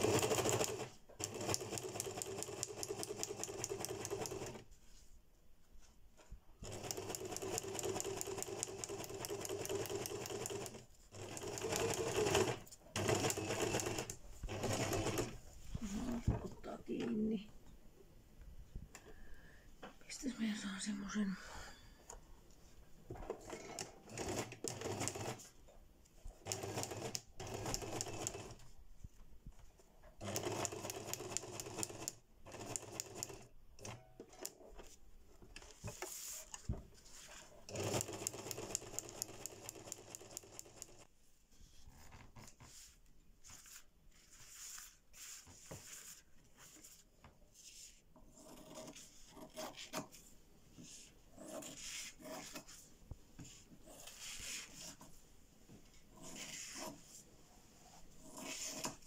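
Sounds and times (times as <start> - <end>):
sewing machine stitching fabric: 0.0 - 4.7, 6.6 - 16.0, 23.3 - 25.5, 26.4 - 28.7, 30.2 - 34.6, 37.1 - 41.1, 58.2 - 59.0.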